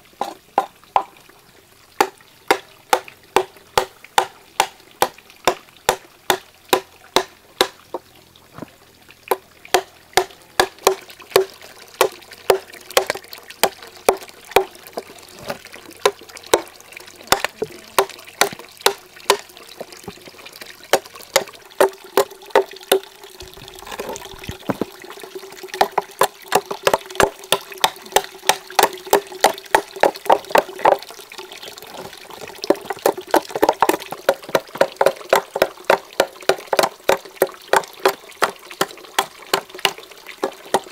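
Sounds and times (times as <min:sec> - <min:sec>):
machete chopping wood: 0:02.0 - 0:07.8, 0:09.3 - 0:11.5
water running into metal pot: 0:09.3 - 0:40.9.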